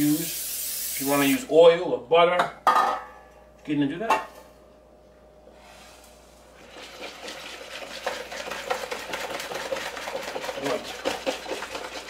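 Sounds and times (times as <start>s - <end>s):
whisk tapping plastic bowl: 7.0s - 12.0s.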